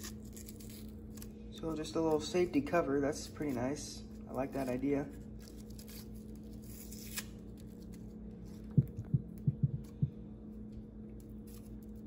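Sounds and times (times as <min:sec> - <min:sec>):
steady hum: 0:00.0 - 0:12.0
soft low thumps: 0:08.7 - 0:10.4.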